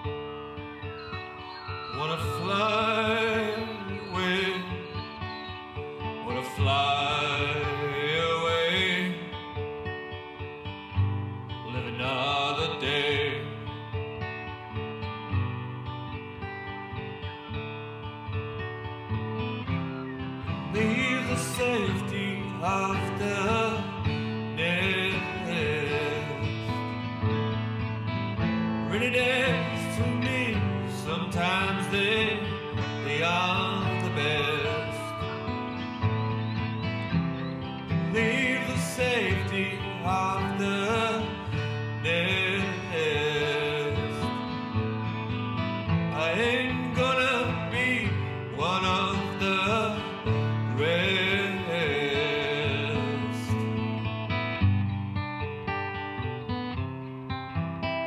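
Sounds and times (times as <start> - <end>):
acoustic guitar: 0.0 - 58.0
country song: 0.0 - 58.0
man singing: 1.9 - 9.7, 11.6 - 14.0, 20.5 - 27.0, 28.8 - 35.6, 37.9 - 44.7, 46.1 - 54.0.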